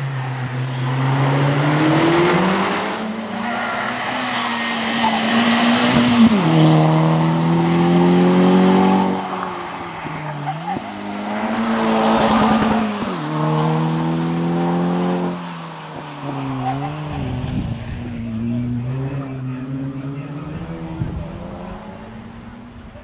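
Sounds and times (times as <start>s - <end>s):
car engine revving hard: 4.0s - 9.4s, 10.4s - 15.4s, 16.0s - 22.8s.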